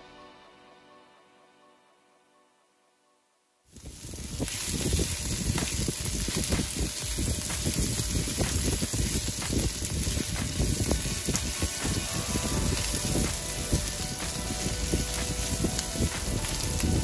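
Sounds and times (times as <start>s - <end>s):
vegetables sizzling in a skillet: 3.7s - 17.0s.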